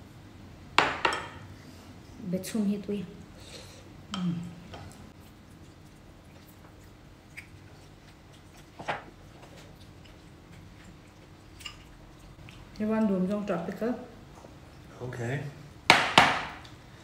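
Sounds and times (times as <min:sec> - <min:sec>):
soft chewing: 0:03.2 - 0:15.0.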